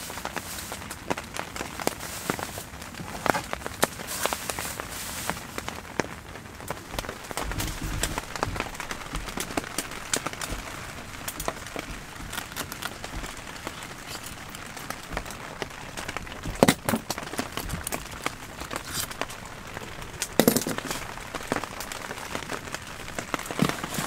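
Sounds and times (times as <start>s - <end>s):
rain pattering on a tent: 0.0s - 24.0s.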